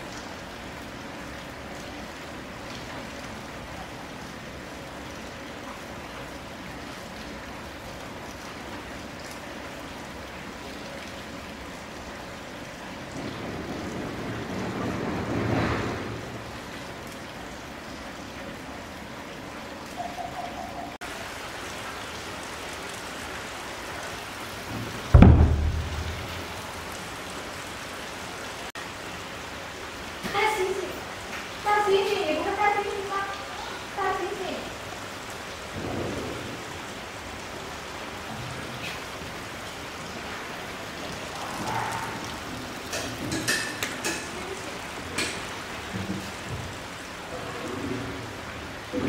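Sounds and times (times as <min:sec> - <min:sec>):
rain hissing: 0:00.0 - 0:49.0.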